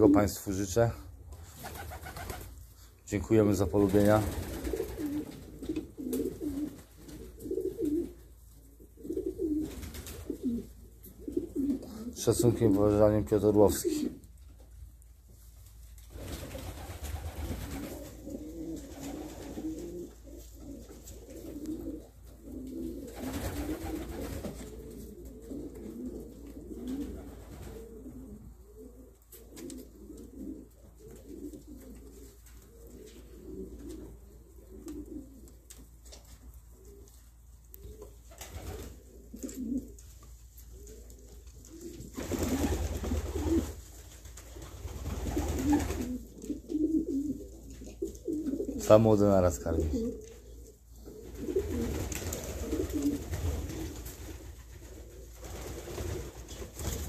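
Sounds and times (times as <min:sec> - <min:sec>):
low wavering pigeon sounds: 0:03.5 - 0:14.4, 0:16.2 - 0:43.9, 0:44.6 - 0:57.0
rustling: 0:29.0 - 0:48.9.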